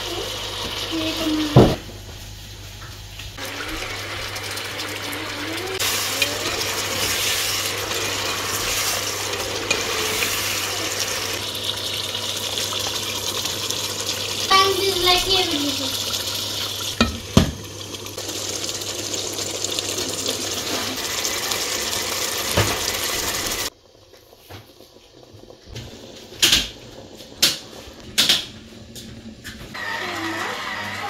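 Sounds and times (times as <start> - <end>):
pot of curry hissing: 3.4 - 16.8.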